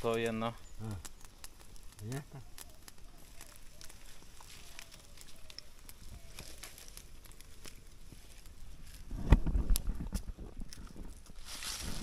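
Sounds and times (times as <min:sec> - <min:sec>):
wood fire embers crackling: 0:00.0 - 0:12.0
low thuds and rustling: 0:09.0 - 0:12.0.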